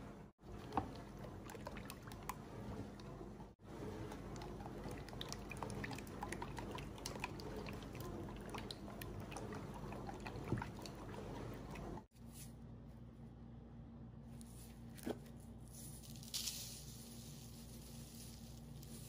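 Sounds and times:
eggs stirred in a bowl: 0:00.4 - 0:12.1.

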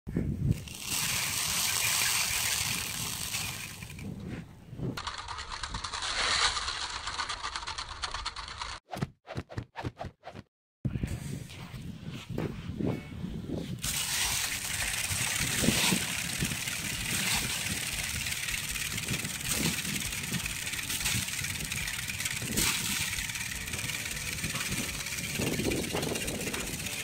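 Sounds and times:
wind rumbling on microphone: 0:00.1 - 0:05.0, 0:10.9 - 0:27.0.

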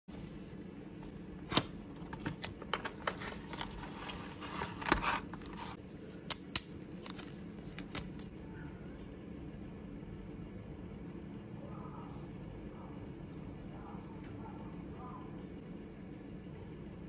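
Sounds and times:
cardboard and plastic rustling: 0:01.4 - 0:06.3, 0:06.9 - 0:08.3.

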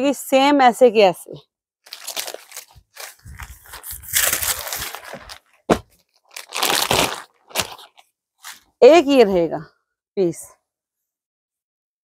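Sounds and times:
sharp plastic crackle: 0:01.8 - 0:08.6
plastic packaging crinkling: 0:01.8 - 0:08.7.

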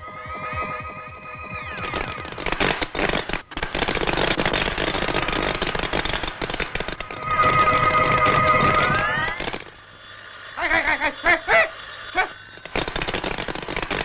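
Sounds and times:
gliding electronic tones: 0:00.0 - 0:02.6, 0:07.0 - 0:12.6
electronic whine tones: 0:00.0 - 0:02.8, 0:07.0 - 0:12.8
crackling electronic buzz: 0:00.0 - 0:14.0.

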